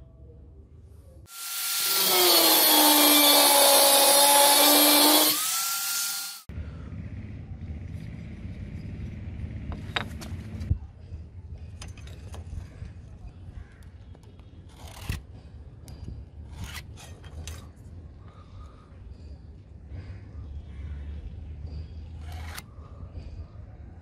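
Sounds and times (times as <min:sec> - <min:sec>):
low background rumble: 0:06.5 - 0:13.8.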